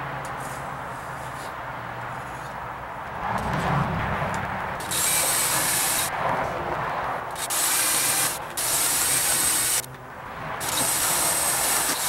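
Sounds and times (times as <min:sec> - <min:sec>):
electric drill boring into steel: 0:04.8 - 0:06.1, 0:07.4 - 0:09.9, 0:10.6 - 0:12.0.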